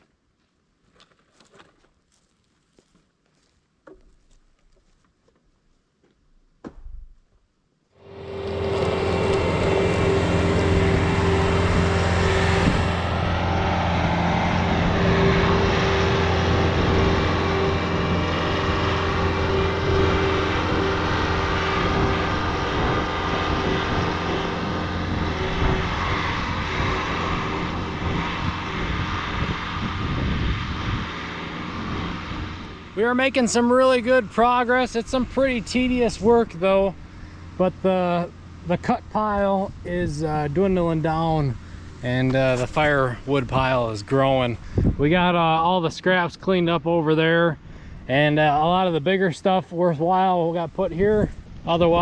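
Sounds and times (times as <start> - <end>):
diesel engine running: 8.0 - 52.0.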